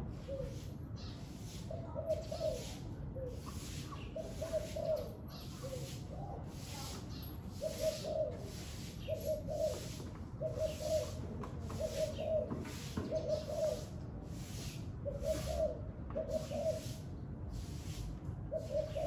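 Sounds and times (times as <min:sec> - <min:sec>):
dove cooing: 0:00.1 - 0:00.8, 0:01.6 - 0:06.8, 0:07.5 - 0:14.0, 0:15.0 - 0:17.1, 0:18.5 - 0:19.0.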